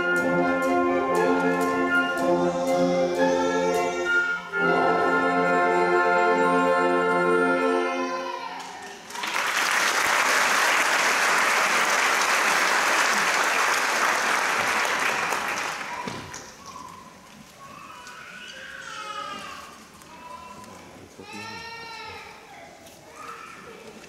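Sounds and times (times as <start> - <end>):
wind band holding a chord: 0.0 - 8.1
audience applause: 8.6 - 16.6.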